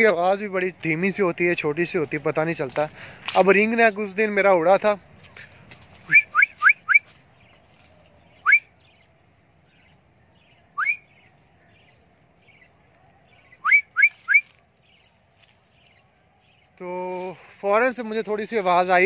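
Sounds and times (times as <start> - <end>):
man whistling rising whistles: 10.8 - 11.0, 13.6 - 14.5.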